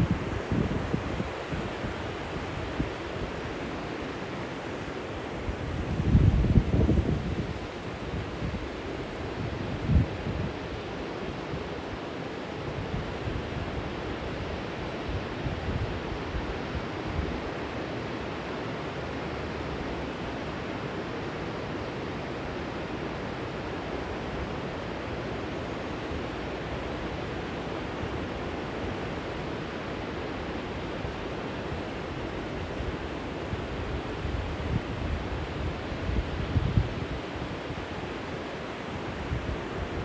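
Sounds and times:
wind buffeting microphone: 0.0 - 3.6, 5.1 - 10.6, 33.6 - 38.3
river water rushing over weir: 0.0 - 40.0.

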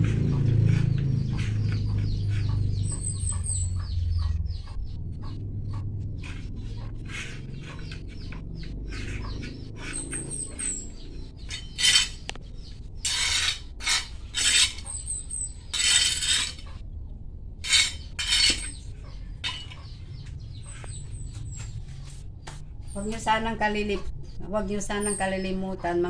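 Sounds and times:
small bird chirping: 0.0 - 16.8, 17.6 - 23.4
hands scraping potting soil: 6.2 - 12.4, 13.0 - 15.1, 15.7 - 16.7, 17.6 - 18.8.

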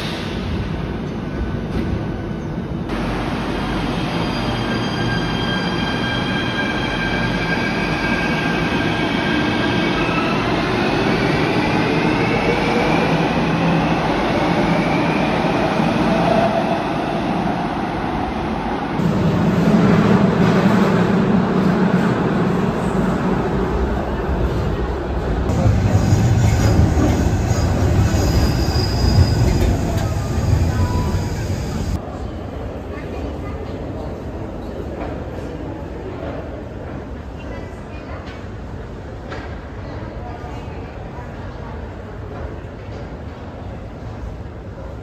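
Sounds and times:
train wheels rumbling on rails: 19.0 - 32.0.

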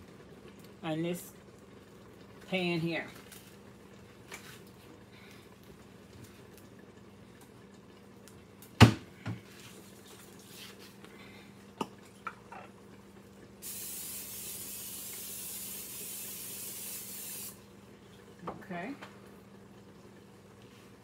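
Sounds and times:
aerosol cooking spray hiss: 13.6 - 17.6.

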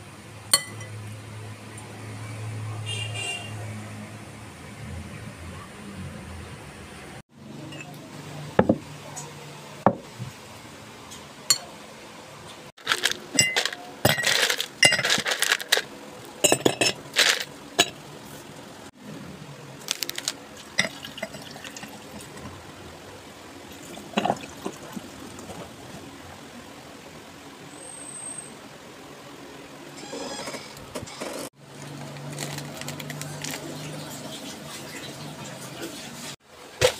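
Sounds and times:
glass beer mugs clinking: 13.4 - 15.3, 16.4 - 17.0, 17.8 - 18.0, 20.8 - 22.0
beer pouring into glass mug: 20.8 - 22.3.

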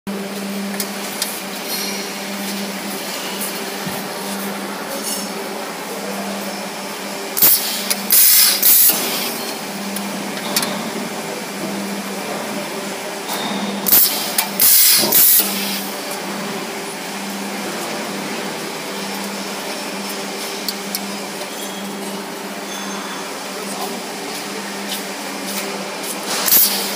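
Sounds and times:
loud pneumatic hiss bursts: 7.4 - 9.3, 13.9 - 15.8, 26.4 - 26.9.

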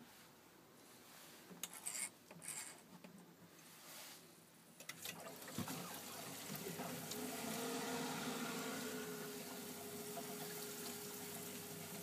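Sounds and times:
rush of flowing water: 5.1 - 12.0.

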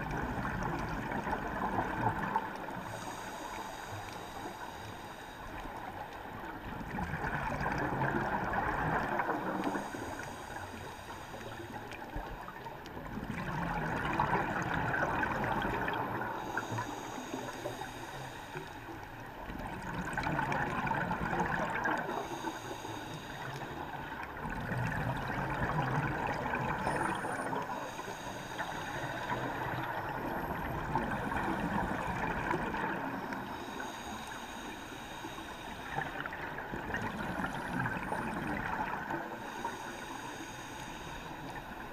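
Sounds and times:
underwater exhaled bubbles: 0.0 - 41.9.

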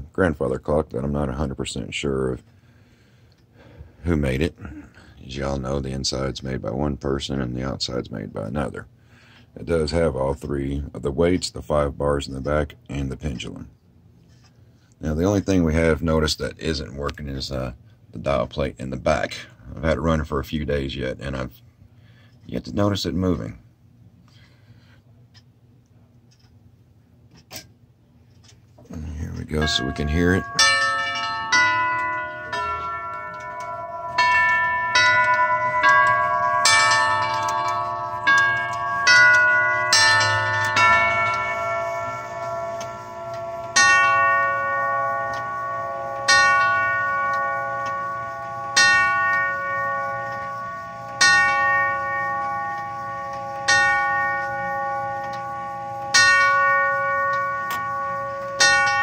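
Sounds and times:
tubular bell chime melody: 28.9 - 59.0
clock striking hour on tube: 29.2 - 59.0.

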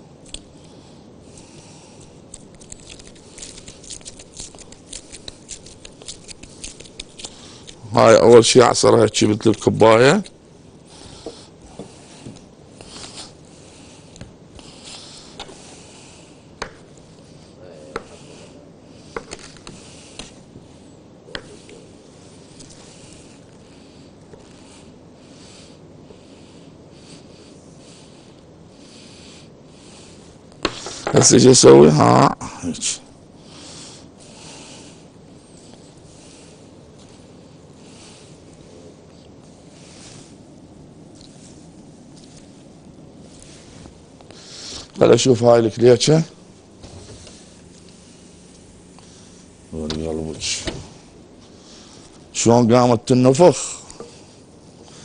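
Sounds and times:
steady low hiss: 0.0 - 55.0
plastic gloves crinkling: 2.3 - 7.9
knife scraping dough: 2.5 - 7.8.

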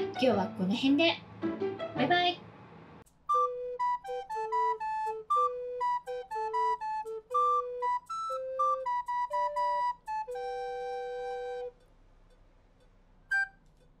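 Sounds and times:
recorders playing a tune: 3.1 - 13.6.

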